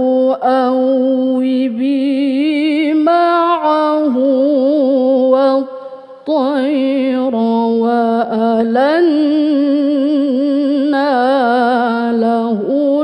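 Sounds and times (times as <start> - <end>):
woman reciting melodically: 0.0 - 13.0.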